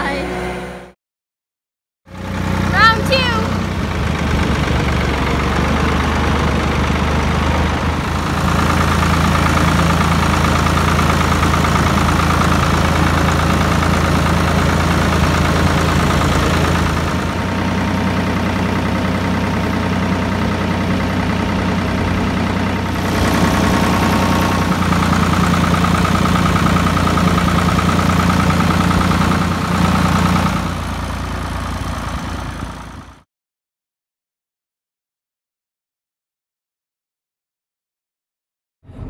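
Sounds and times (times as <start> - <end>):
tractor engine running: 2.1 - 33.2.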